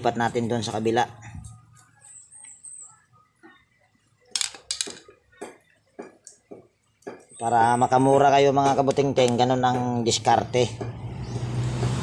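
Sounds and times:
small hard parts clicking: 0:04.3 - 0:06.4.

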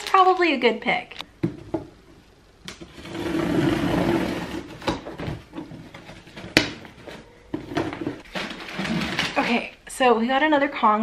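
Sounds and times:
packing material rustling: 0:08.0 - 0:09.7.

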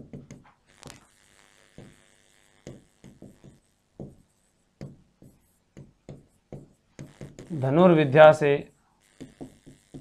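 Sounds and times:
marker squeaking on whiteboard: 0:02.6 - 0:07.8, 0:08.6 - 0:10.0.

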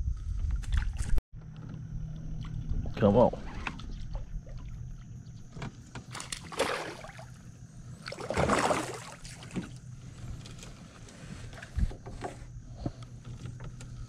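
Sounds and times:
low steady hum: 0:00.0 - 0:14.0
water splashing: 0:06.2 - 0:07.4, 0:08.0 - 0:09.8.

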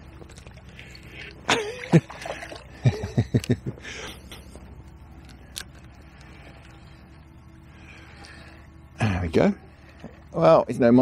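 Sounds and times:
fish splashing in water: 0:00.4 - 0:02.8.

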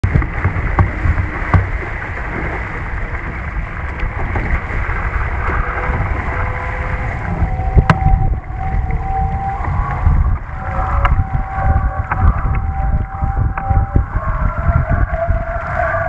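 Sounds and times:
sharp knocks: 0:00.0 - 0:01.8
water rushing past hull: 0:00.0 - 0:16.0
wind buffeting microphone: 0:00.0 - 0:16.0.

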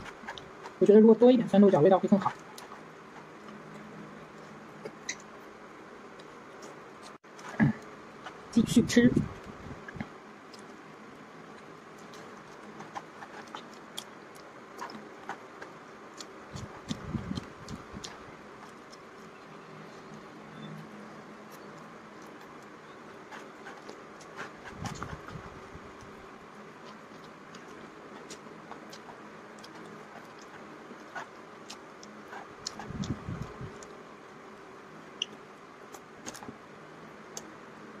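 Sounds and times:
steady low hiss: 0:00.0 - 0:38.0
person chewing noodles: 0:09.8 - 0:34.2.

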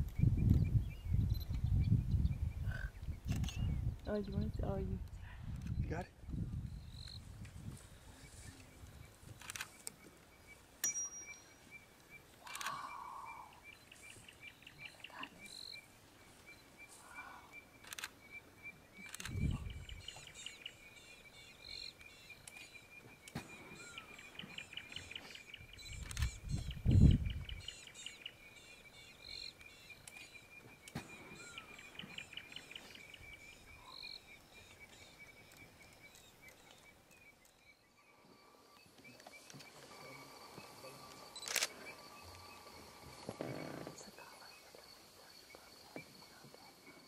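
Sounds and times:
short high bird calls: 0:12.4 - 0:13.8.

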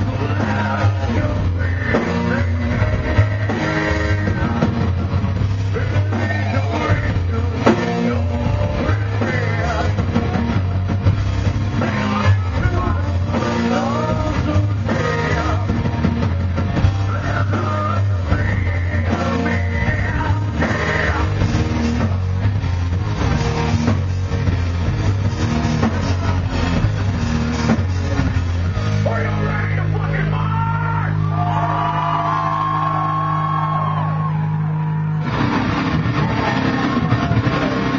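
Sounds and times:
person singing into microphone: 0:00.0 - 0:04.8, 0:05.7 - 0:10.3, 0:12.1 - 0:15.9, 0:17.0 - 0:21.4
drum kit: 0:00.0 - 0:37.9
electric guitars: 0:00.0 - 0:37.9.

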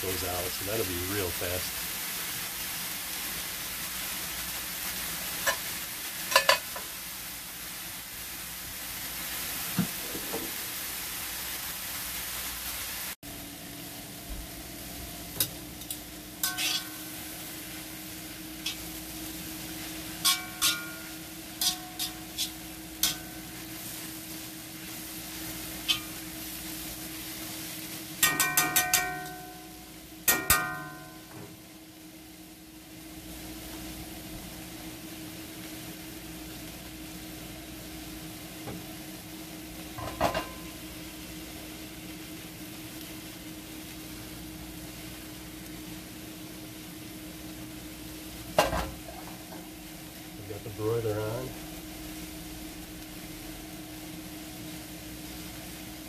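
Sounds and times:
vegetables sizzling in a wok: 0:00.0 - 0:56.0
metal tongs clinking on pan: 0:06.3 - 0:06.8, 0:15.4 - 0:17.0, 0:20.2 - 0:23.4, 0:25.8 - 0:26.2, 0:28.2 - 0:29.7, 0:30.3 - 0:31.2.

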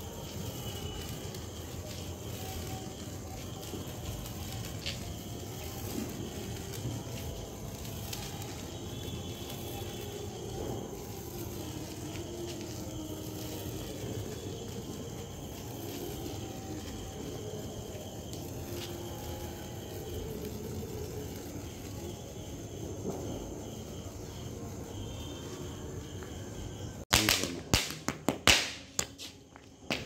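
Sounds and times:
crickets chirping: 0:00.0 - 0:30.0
faint fireworks crackles: 0:00.0 - 0:30.0
fireworks hissing: 0:00.0 - 0:30.0.

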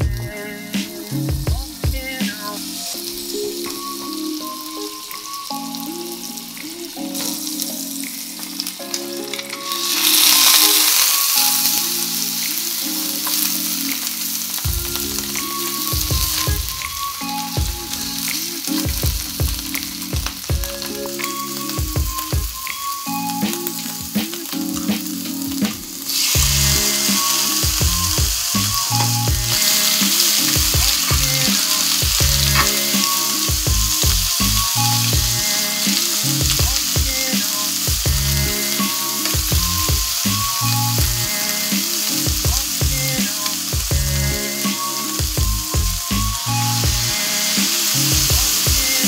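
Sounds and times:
soft background music: 0:00.0 - 0:49.0
seafood sizzling in a pan: 0:00.2 - 0:49.0
tongs stirring: 0:24.4 - 0:43.7.

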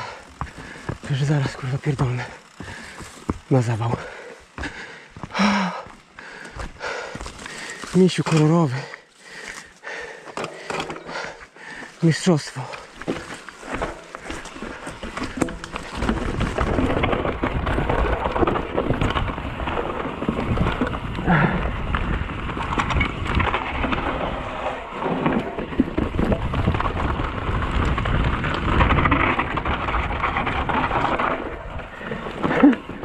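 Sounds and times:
bike rattles and knocks: 0:00.0 - 0:33.0
tyres rolling on dirt: 0:00.0 - 0:33.0
wind rumbling on microphone: 0:13.7 - 0:33.0.

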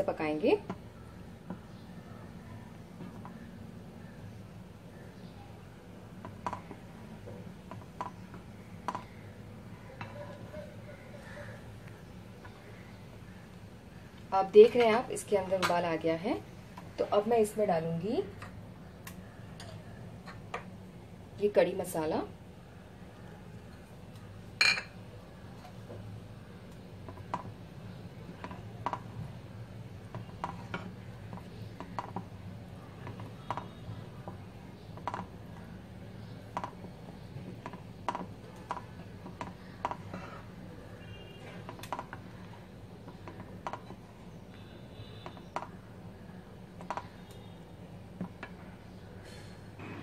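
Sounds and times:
wooden spatula knocking on pot: 0:06.2 - 0:06.8, 0:28.3 - 0:29.2, 0:30.1 - 0:32.3, 0:33.0 - 0:35.7, 0:36.5 - 0:40.1.

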